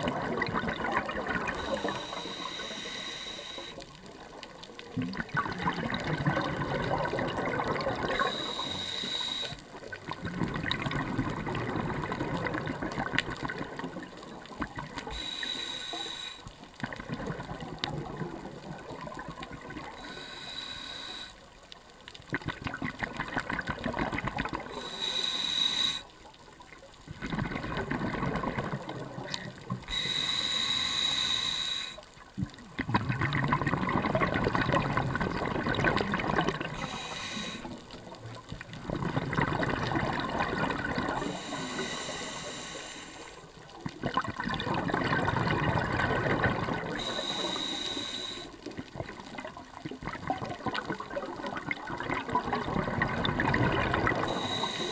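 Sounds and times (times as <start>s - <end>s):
bubbling exhale underwater: 0.0s - 4.3s, 4.9s - 21.3s, 22.3s - 26.0s, 27.1s - 43.0s, 43.6s - 54.9s
hissing regulator inhale: 1.5s - 4.0s, 8.1s - 9.8s, 15.0s - 16.6s, 20.0s - 21.5s, 24.7s - 26.2s, 29.3s - 32.1s, 36.6s - 37.9s, 41.1s - 43.5s, 47.0s - 48.7s, 54.1s - 54.9s.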